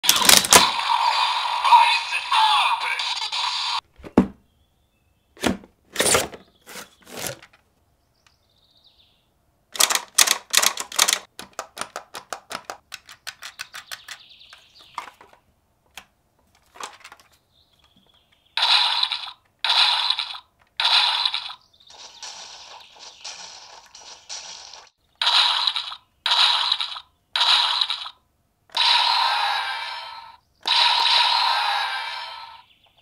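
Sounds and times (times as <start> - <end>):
plastic toy clicks and snaps: 9.8 - 14.6.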